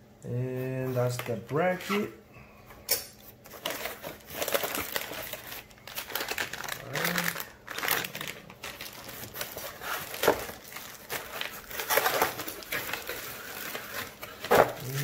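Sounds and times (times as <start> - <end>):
plastic bag crinkling: 3.5 - 15.0
cardboard rustling and scraping: 7.8 - 15.0.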